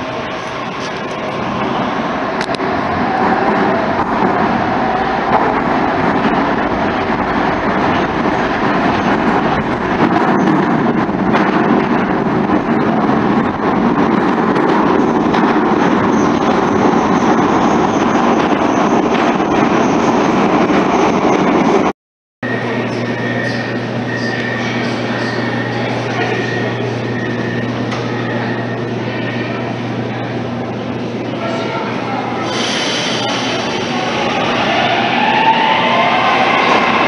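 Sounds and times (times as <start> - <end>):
train wheels on rails: 0.0 - 21.9.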